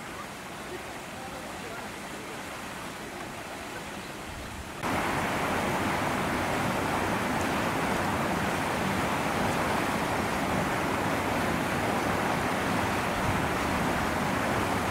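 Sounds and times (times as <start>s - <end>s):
steady rushing noise: 4.7s - 14.9s.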